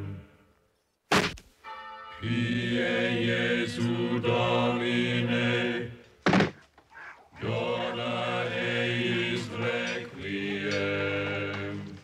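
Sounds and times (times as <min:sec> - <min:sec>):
wooden board smacks: 0:06.2 - 0:06.7
men chanting in unison: 0:07.4 - 0:12.0.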